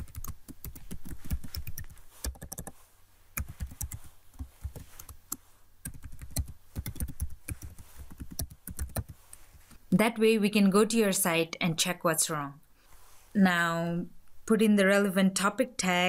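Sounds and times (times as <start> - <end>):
computer keyboard typing: 0.0 - 2.7, 3.4 - 9.2.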